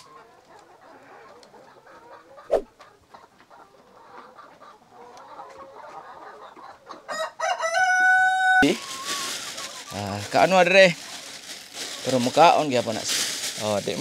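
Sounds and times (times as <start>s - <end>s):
hens clucking softly: 0.0s - 7.5s
rooster crowing: 7.1s - 9.2s.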